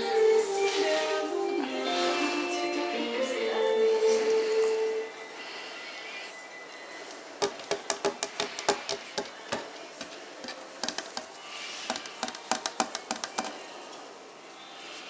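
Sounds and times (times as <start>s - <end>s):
puppy claws clicking on tile floor: 7.5s - 13.7s.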